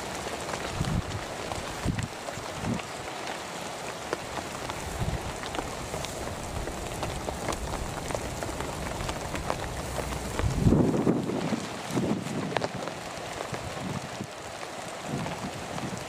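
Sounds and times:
heavy rain on grass: 0:00.0 - 0:16.0
low bumps: 0:06.2 - 0:11.3.

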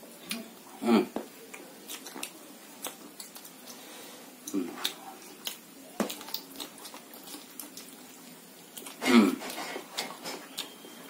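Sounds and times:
wet chewing mouth clicks: 0:01.5 - 0:03.8, 0:04.4 - 0:08.0, 0:08.7 - 0:10.8.

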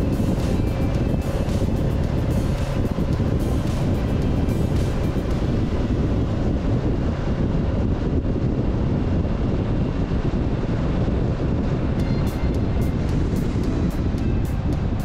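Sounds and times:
road rumble: 0:00.0 - 0:15.0
wind buffeting microphone: 0:00.0 - 0:15.0.

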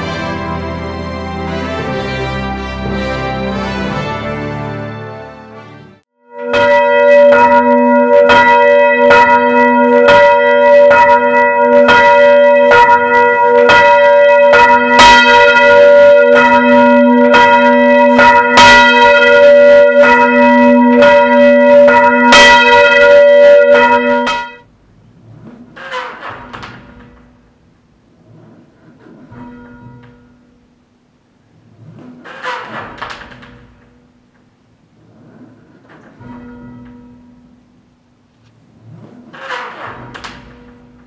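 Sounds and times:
church bell tolling: 0:00.0 - 0:04.9, 0:06.2 - 0:24.7, 0:29.3 - 0:30.6, 0:36.1 - 0:37.8.

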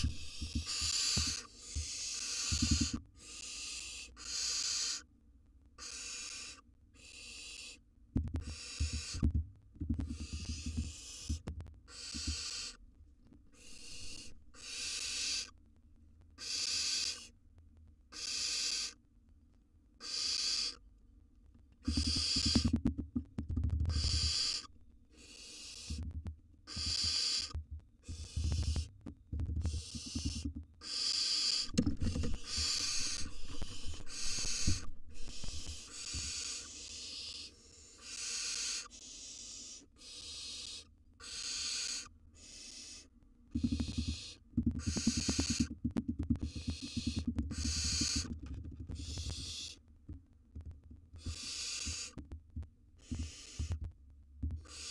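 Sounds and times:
owlets hissing snore calls: 0:00.0 - 0:05.0, 0:05.8 - 0:07.8, 0:08.5 - 0:09.2, 0:11.9 - 0:12.8, 0:13.6 - 0:15.5, 0:16.4 - 0:17.3, 0:18.2 - 0:19.0, 0:20.0 - 0:20.8, 0:21.9 - 0:22.7, 0:24.0 - 0:26.0, 0:26.7 - 0:27.5, 0:30.8 - 0:45.6, 0:46.5 - 0:48.3, 0:49.0 - 0:49.8, 0:51.2 - 0:52.2, 0:53.0 - 0:53.6, 0:54.7 - 0:54.9
low thumps: 0:31.7 - 0:35.7.

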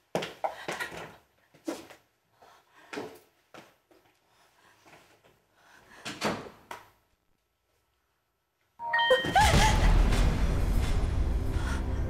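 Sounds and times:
eerie suspense music: 0:09.0 - 0:12.0.

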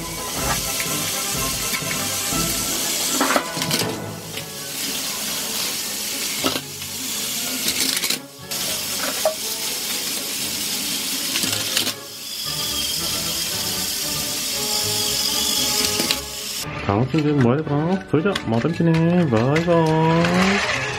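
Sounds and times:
toy train motors whirring: 0:00.0 - 0:16.6, 0:19.4 - 0:20.9
plastic toy trains crashing: 0:00.4 - 0:12.1, 0:14.7 - 0:16.3, 0:19.3 - 0:20.9.

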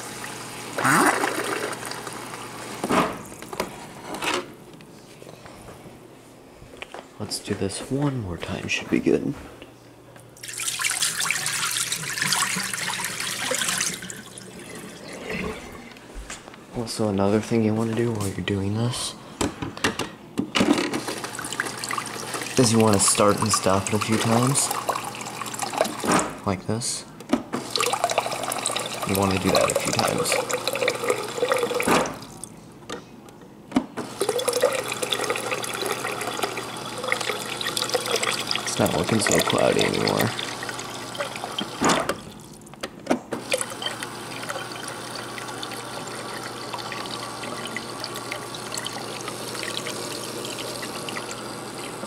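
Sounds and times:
water pouring into a sink: 0:01.0 - 0:02.2, 0:10.4 - 0:15.6, 0:21.2 - 0:26.0, 0:27.6 - 0:32.5, 0:34.0 - 0:42.6, 0:43.4 - 0:52.0.

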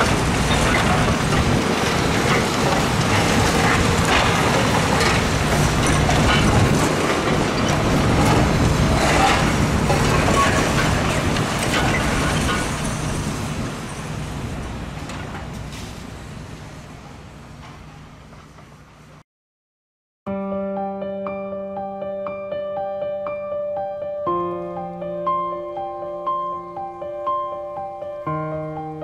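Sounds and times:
rubble knocks and clatter: 0:00.0 - 0:12.8
heavy diesel machinery droning: 0:00.0 - 0:19.1.

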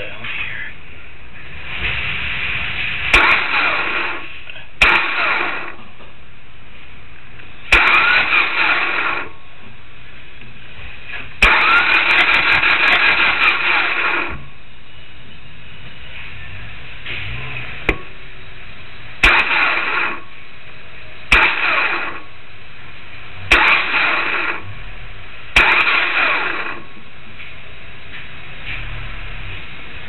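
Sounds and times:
mechanical whirring: 0:01.7 - 0:05.9, 0:07.7 - 0:09.4, 0:11.3 - 0:27.1.

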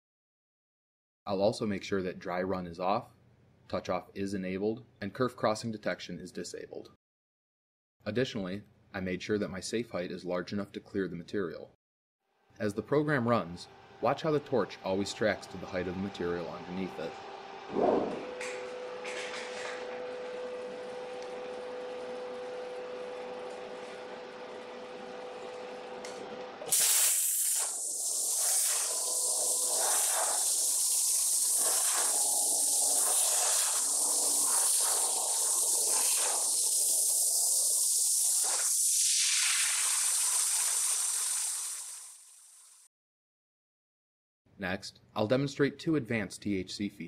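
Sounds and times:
plasma torch hiss: 0:26.7 - 0:42.8.

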